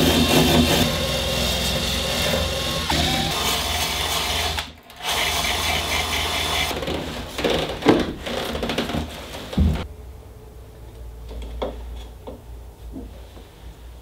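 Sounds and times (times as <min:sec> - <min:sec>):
drill with wire brush scouring metal: 0:00.0 - 0:06.7.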